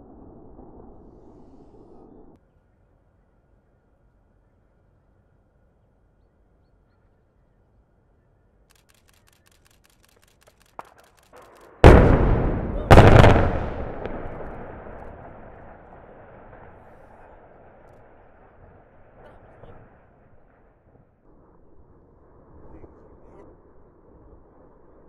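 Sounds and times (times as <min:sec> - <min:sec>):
long rumble: 0:00.0 - 0:02.4, 0:11.8 - 0:17.1
faint ticks: 0:08.6 - 0:11.8
small cracks: 0:08.7 - 0:11.8
very loud explosive blasts: 0:11.7 - 0:19.8.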